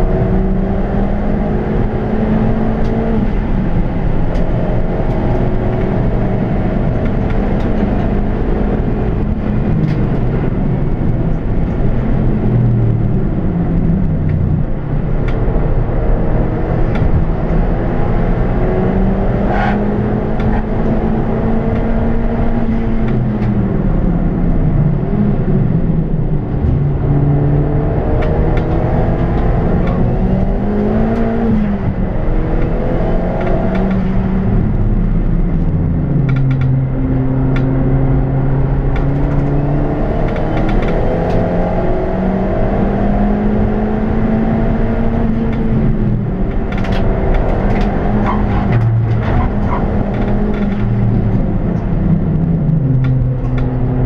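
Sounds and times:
car engine accelerating: 0.0s - 54.0s
road noise rumble: 0.0s - 54.0s.

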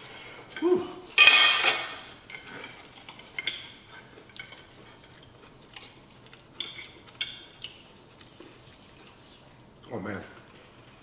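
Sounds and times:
cutlery clinking on plates: 1.2s - 5.2s, 6.6s - 7.6s.

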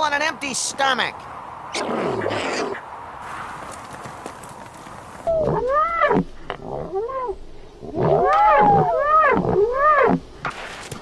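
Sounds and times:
animal calls rising and falling: 5.2s - 10.2s.

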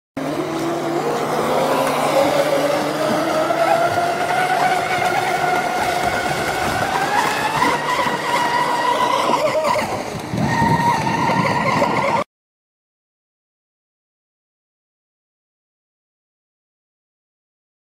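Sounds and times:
electric motors whining: 0.2s - 12.2s.

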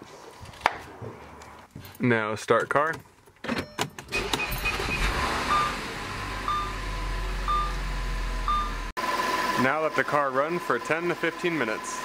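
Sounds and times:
dashboard chime beeping: 3.6s - 5.8s, 6.5s - 6.8s, 7.5s - 7.8s, 8.5s - 8.8s
car engine starting and idling: 3.9s - 12.0s.

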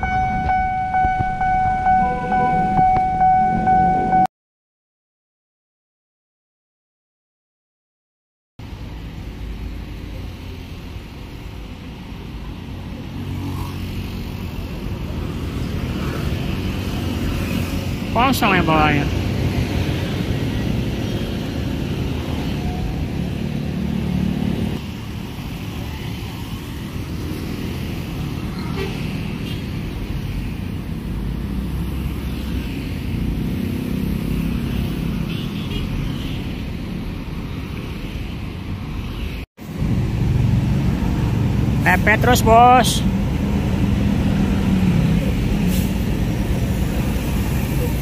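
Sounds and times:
bus rumbling: 0.0s - 4.3s, 8.6s - 48.0s
motorcycles and cars driving past: 8.7s - 48.0s
diesel coach engine pulling away: 43.0s - 48.0s.

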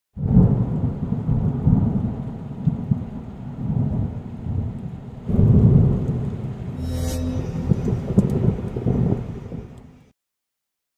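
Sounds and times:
rain: 0.2s - 6.8s, 8.1s - 10.1s
thunder rumbling: 7.5s - 9.8s.

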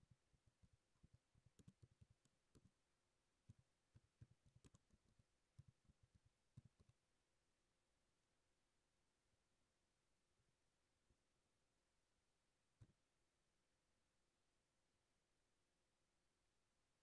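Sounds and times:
faint keyboard typing: 0.0s - 7.2s.

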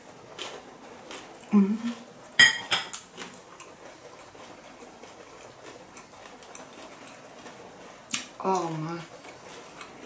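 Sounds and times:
soft chewing crunches: 0.3s - 10.0s.

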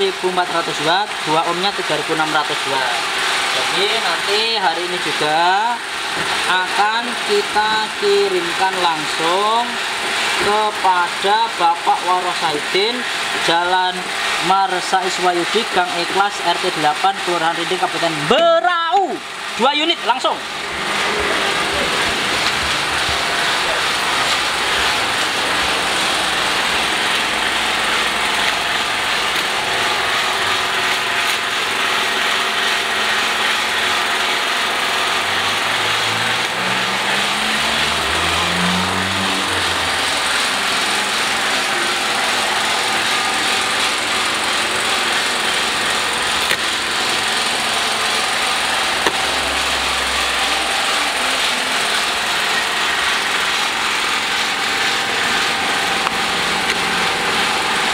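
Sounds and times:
motor running steadily: 0.0s - 57.9s.

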